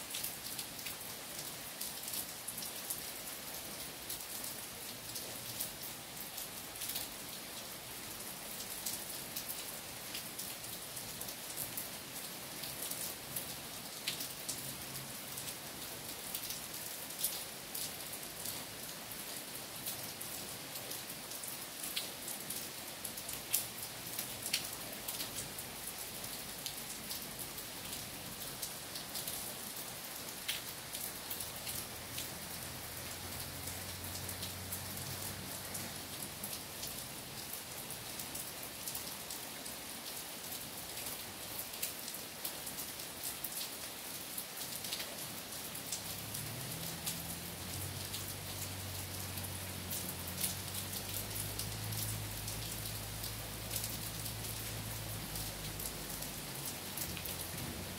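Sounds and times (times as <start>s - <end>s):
rain falling on trees: 0.0s - 57.9s
raindrops ticking: 45.8s - 57.9s.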